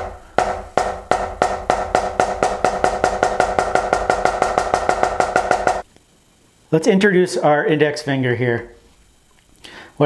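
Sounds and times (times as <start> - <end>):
drum ringing: 0.0 - 5.8
drumstick striking drum head: 0.0 - 5.8.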